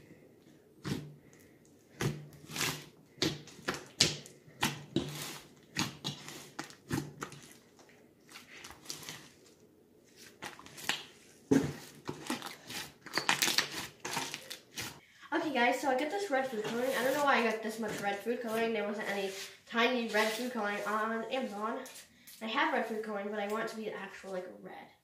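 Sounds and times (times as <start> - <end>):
slime squishing and crackling: 2.0 - 9.5, 11.9 - 15.0.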